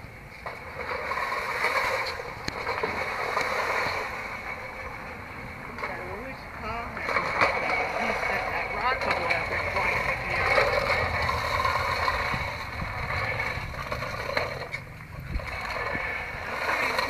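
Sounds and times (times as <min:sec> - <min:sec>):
low rumble: 0:04.0 - 0:17.0.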